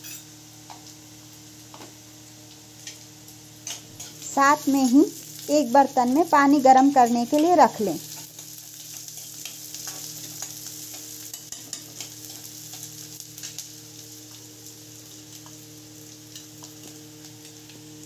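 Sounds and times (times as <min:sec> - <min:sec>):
onions sizzling in hot oil: 0:00.0 - 0:18.0
spatula scraping and tapping pan: 0:08.1 - 0:13.6.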